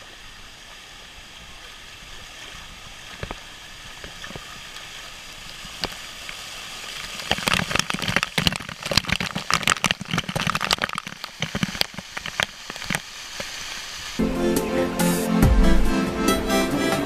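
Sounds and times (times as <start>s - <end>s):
water splattering on camera: 5.5s - 14.2s.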